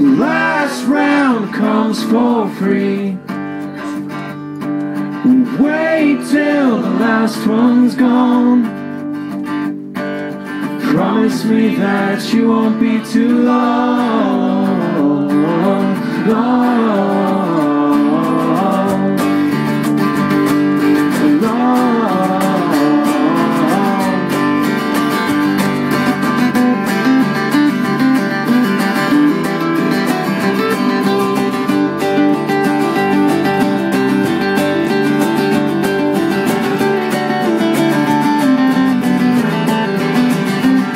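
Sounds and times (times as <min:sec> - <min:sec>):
men singing: 0:00.0 - 0:03.3, 0:05.2 - 0:08.7, 0:10.8 - 0:19.5, 0:21.0 - 0:24.7
acoustic guitars strumming: 0:00.0 - 0:40.9
bass guitar: 0:00.0 - 0:40.9.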